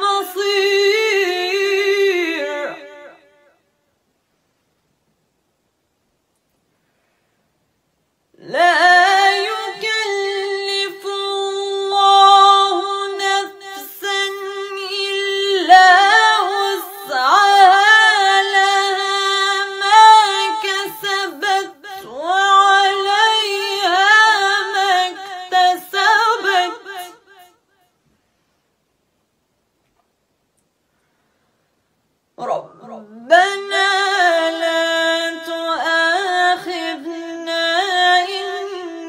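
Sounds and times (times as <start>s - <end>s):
woman chanting melodic recitation: 8.4s - 27.1s, 32.4s - 39.0s.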